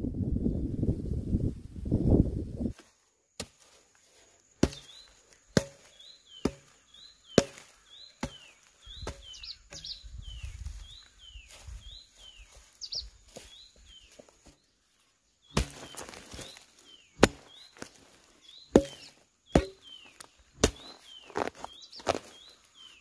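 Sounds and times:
scraping of earth: 2.7 - 10.0, 15.4 - 23.0
hoe chopping dry soil: 3.4 - 10.0, 15.5 - 22.5
bird chirping: 4.5 - 23.0.

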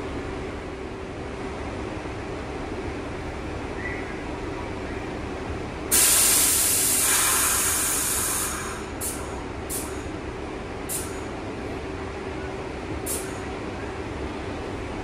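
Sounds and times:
short puffs of air: 5.9 - 10.0
train air brakes hissing: 5.9 - 10.2, 10.8 - 11.3, 13.0 - 13.5.

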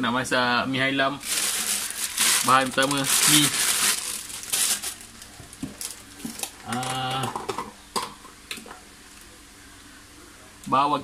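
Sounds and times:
kitchen items clicking and tapping: 5.6 - 8.8.

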